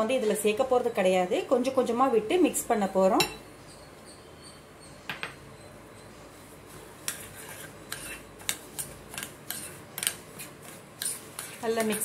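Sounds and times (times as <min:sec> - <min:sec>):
spoon scraping bowl: 0:06.8 - 0:12.0.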